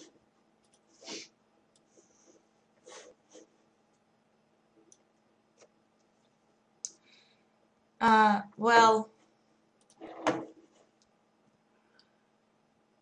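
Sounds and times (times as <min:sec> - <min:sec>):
computer mouse clicks: 0:00.6 - 0:00.9, 0:09.8 - 0:10.0.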